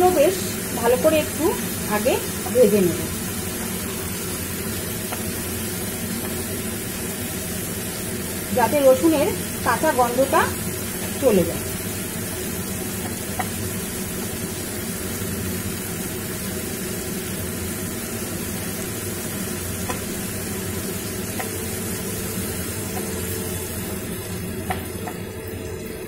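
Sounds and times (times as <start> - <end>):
chicken sizzling in oil: 0.0 - 26.0
spatula tapping pan: 5.0 - 6.5, 12.9 - 13.6, 19.8 - 20.2, 21.3 - 21.7, 22.9 - 23.2, 24.6 - 25.3.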